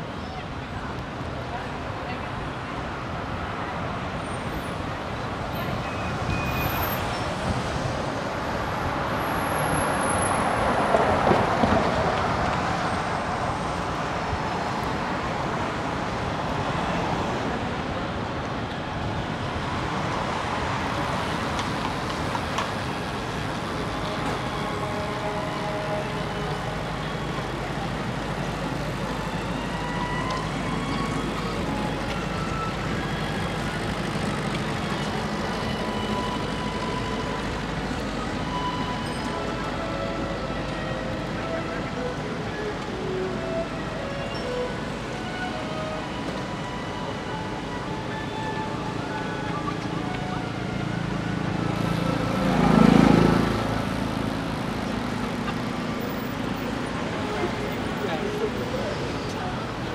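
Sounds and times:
city street traffic: 0.0 - 59.9
vehicle passing: 51.1 - 55.2.

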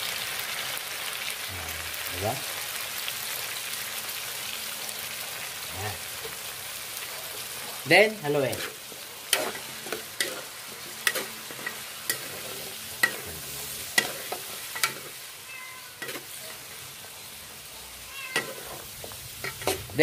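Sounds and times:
food sizzling: 0.0 - 20.0
spatula scraping a wok: 7.2 - 20.0.

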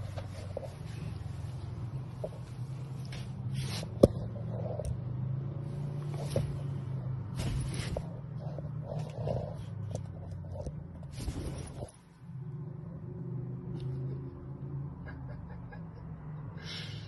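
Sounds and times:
dog growling low: 8.3 - 10.8.

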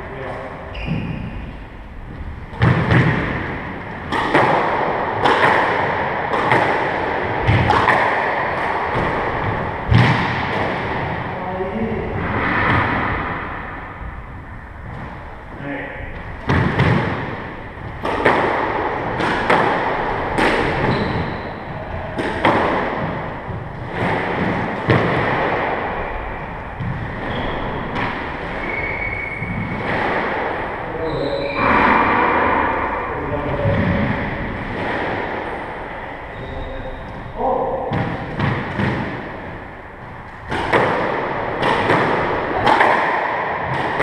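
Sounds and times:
shoes squeaking on wooden floor: 0.7 - 1.6, 20.8 - 21.5, 27.0 - 29.8, 36.3 - 37.3
squash ball hits: 2.5 - 11.2, 16.4 - 26.2, 26.8 - 30.9, 33.5 - 35.5, 37.6 - 44.0.

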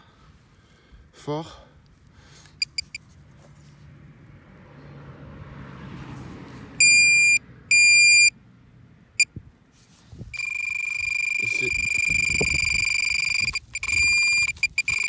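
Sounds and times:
metal detector beeps: 2.6 - 3.0, 6.8 - 8.3, 10.3 - 15.0
metal detector chirp: 2.6 - 3.0, 6.8 - 8.3, 10.3 - 15.0.

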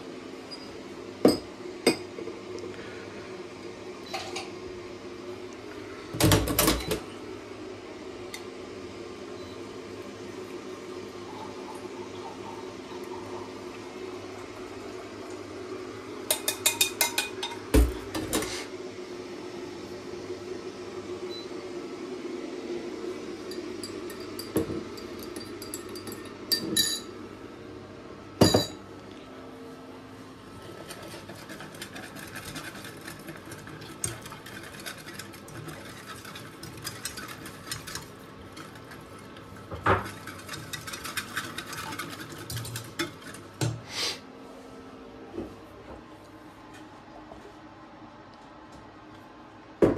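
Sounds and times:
whisk rattling in metal saucepan: 16.3 - 17.6, 30.6 - 43.6
glass and metal clinking: 23.5 - 27.1.

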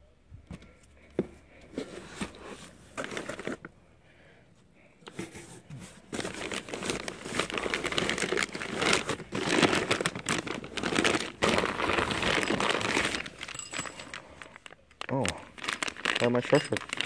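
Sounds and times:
plastic bag crinkling: 6.0 - 17.0.

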